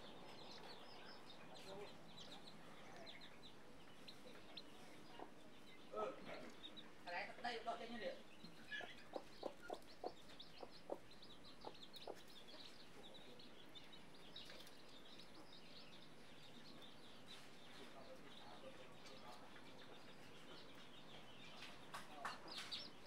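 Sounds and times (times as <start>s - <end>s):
chicks peeping: 0.0s - 23.0s
hen clucking: 0.3s - 14.6s.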